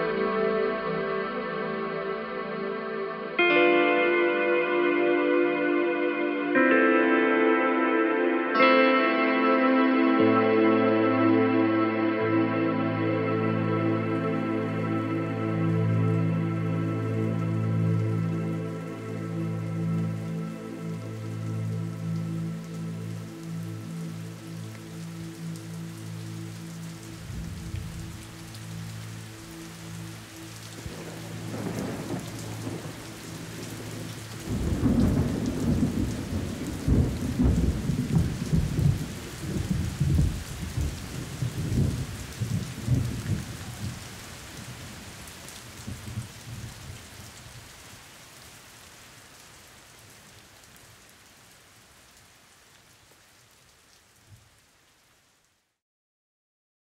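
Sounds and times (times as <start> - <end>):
held low musical notes: 0.0 - 47.1
rain falling: 10.2 - 55.8
rolling thunder: 30.8 - 45.1.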